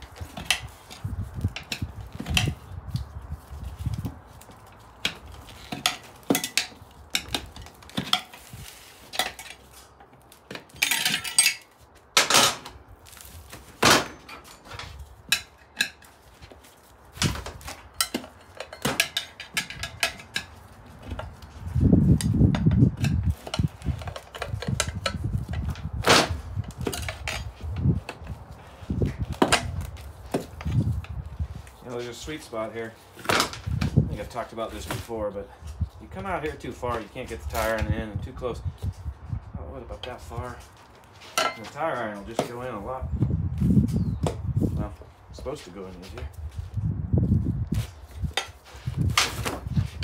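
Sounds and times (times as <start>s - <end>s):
tire irons clanking on wheel rim: 3.8s - 12.8s, 17.1s - 28.3s, 33.1s - 35.1s.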